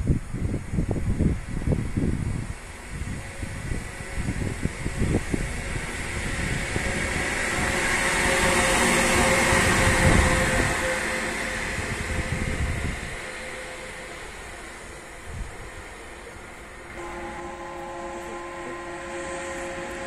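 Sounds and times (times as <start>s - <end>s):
electric locomotive passing: 0.0s - 20.0s
steady tone: 3.2s - 20.0s.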